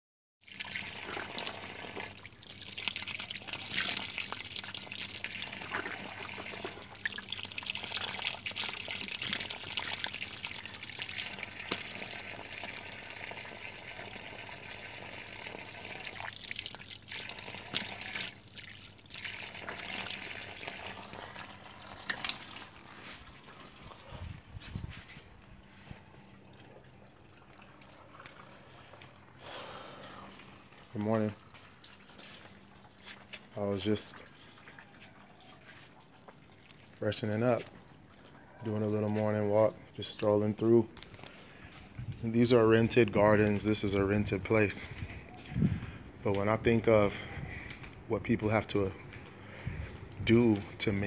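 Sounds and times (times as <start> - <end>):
water trickling and splashing: 0.4 - 38.6.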